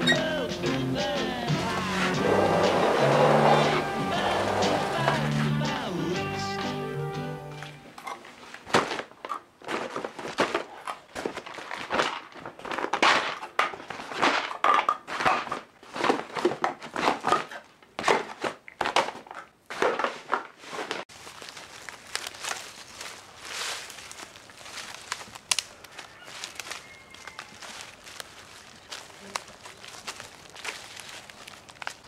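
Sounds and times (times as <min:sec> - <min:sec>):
crinkling and rustling: 0:07.6 - 0:32.0.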